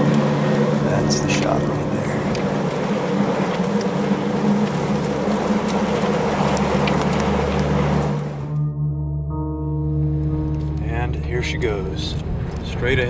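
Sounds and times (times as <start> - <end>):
storm wind and rain: 0.0 - 8.5, 11.8 - 13.0
low droning background music: 0.0 - 13.0.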